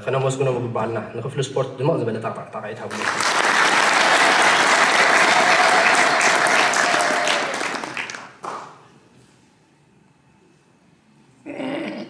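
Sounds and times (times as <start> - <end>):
audience applauding: 2.9 - 8.8.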